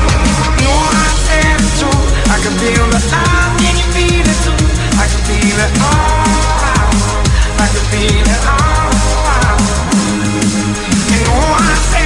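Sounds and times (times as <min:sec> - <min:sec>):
electronic music with heavy bass: 0:00.0 - 0:12.0.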